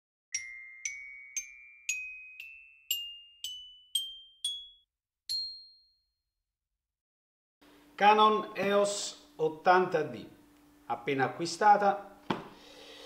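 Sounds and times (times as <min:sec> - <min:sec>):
glockenspiel-like jingle: 0:00.3 - 0:06.2.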